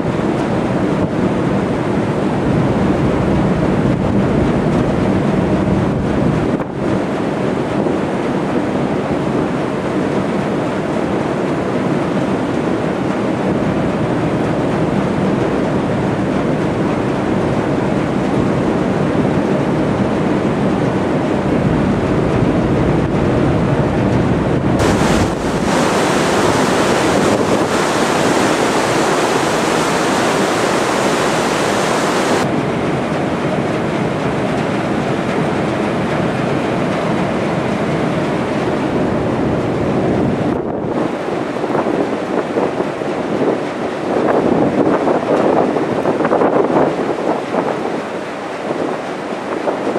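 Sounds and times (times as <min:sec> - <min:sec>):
wind buffeting microphone: 0:21.2 - 0:32.8
rushing water: 0:24.8 - 0:32.5.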